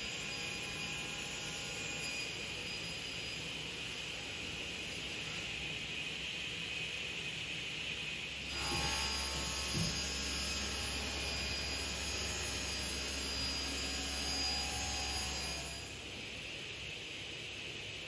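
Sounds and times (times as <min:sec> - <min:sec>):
panel saw cutting wood: 0:08.5 - 0:15.9.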